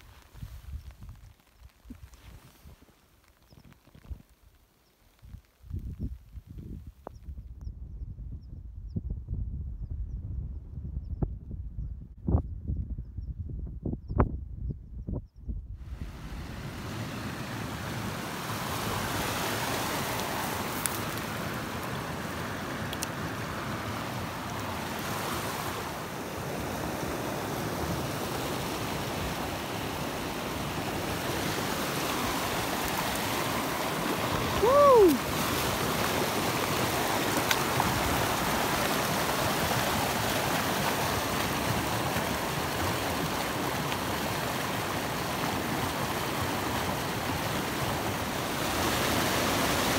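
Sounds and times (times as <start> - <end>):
stream running over rocks: 15.9 - 49.9.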